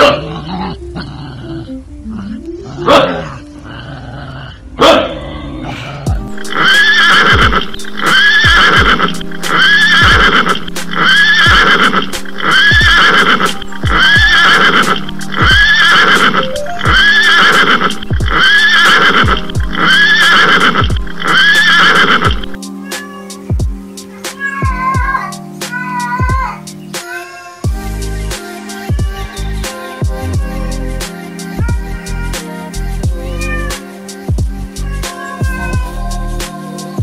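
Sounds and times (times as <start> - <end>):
music with kick-drum beat: 6.1 - 6.6, 7.3 - 7.8, 8.4 - 10.9, 11.5 - 14.4, 15.1 - 15.7, 17.9 - 18.6, 19.2 - 19.8, 20.8 - 21.2, 23.5 - 24.0, 24.6 - 26.6, 27.6 - 32.0, 33.0 - 33.3, 34.1 - 34.8, 35.4 - 37.0
horse whinny: 6.4 - 23.2.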